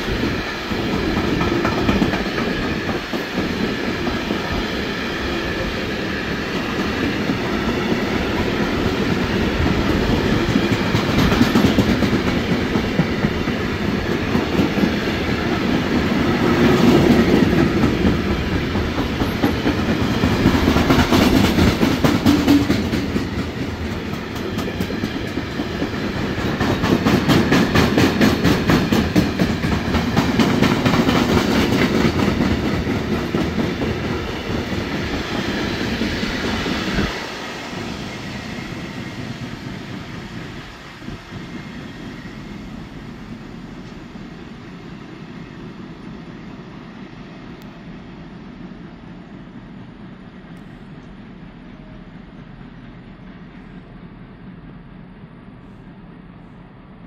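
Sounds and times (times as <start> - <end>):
freight train wheels clattering: 0.0 - 40.0.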